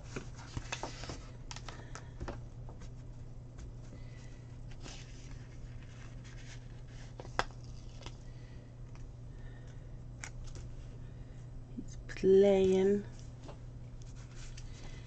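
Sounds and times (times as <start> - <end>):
rustles and clicks at a desk: 0.0 - 4.0, 4.7 - 8.2, 12.6 - 15.0
steady low hum: 0.0 - 15.0.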